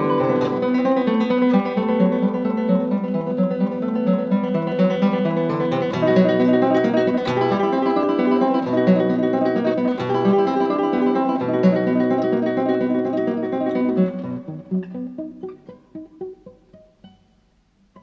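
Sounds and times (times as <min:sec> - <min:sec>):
plucked guitar run: 0:00.0 - 0:18.0.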